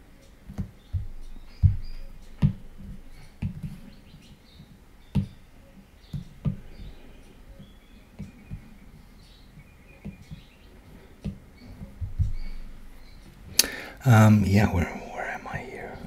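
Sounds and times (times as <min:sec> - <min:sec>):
stylus tapping on glass screen: 0:01.0 - 0:02.7.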